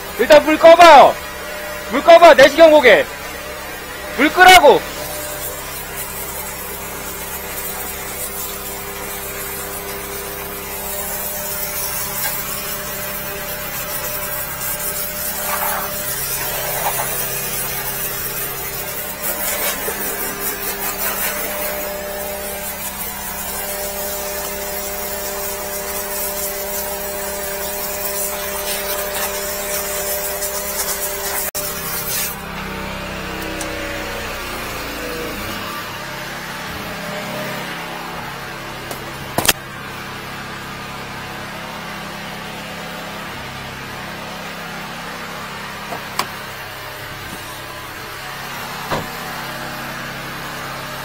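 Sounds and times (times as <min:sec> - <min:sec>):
engine and pump humming: 0:00.0 - 0:51.0
high-pressure water spray hissing: 0:02.0 - 0:37.6.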